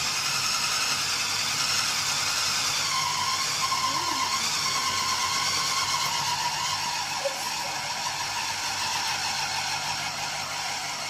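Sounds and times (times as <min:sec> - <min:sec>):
food processor motor running: 0:00.0 - 0:11.0.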